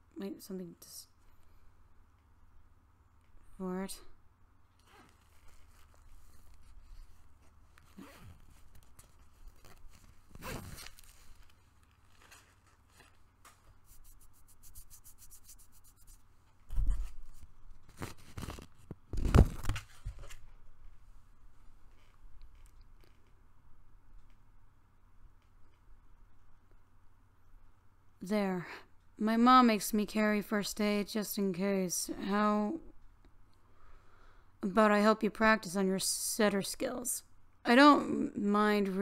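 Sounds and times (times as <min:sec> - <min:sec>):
zipper pulled: 0:04.8 - 0:06.9, 0:07.8 - 0:13.1
rustling in a backpack: 0:04.8 - 0:13.9.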